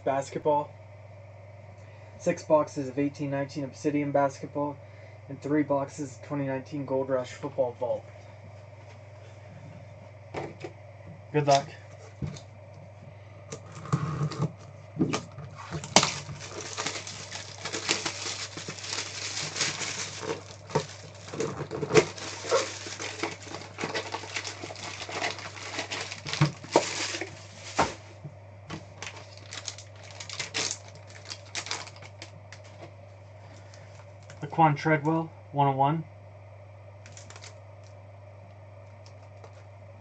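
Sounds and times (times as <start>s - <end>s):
shrink wrap crinkling: 15.2s - 28.0s, 28.8s - 32.8s, 37.0s - 37.9s.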